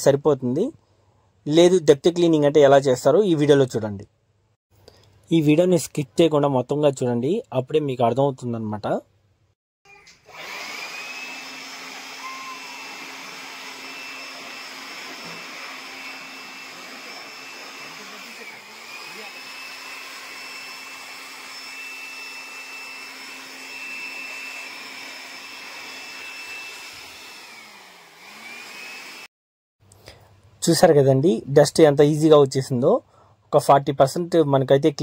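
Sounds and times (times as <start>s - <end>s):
electric air blower whining: 10.2s - 29.3s.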